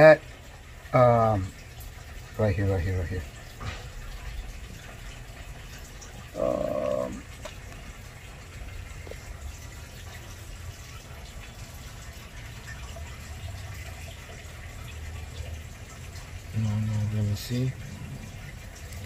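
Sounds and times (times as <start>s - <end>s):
water running: 0.0s - 19.0s.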